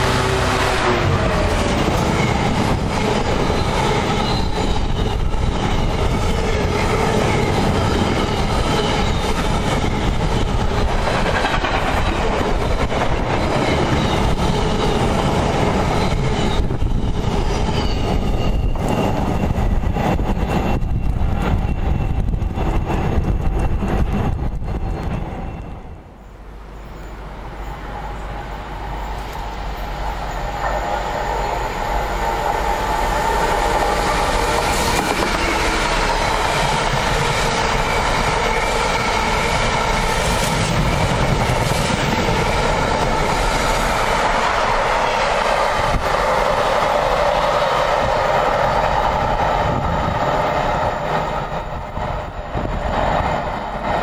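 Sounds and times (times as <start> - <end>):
diesel locomotive passing: 0.0 - 54.0
wagons rumbling over rails: 0.0 - 54.0.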